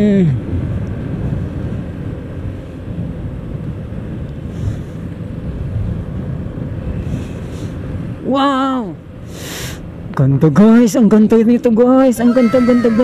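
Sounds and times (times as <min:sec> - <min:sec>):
wind rushing over microphone: 0:00.0 - 0:10.1
scooter engine and road noise: 0:00.0 - 0:13.0.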